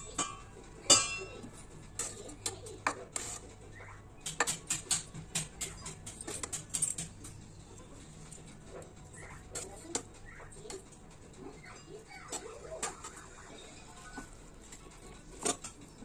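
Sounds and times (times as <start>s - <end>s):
metal spoon scraping a pot: 0.0s - 3.6s
metal pot lid clinking: 0.1s - 1.5s.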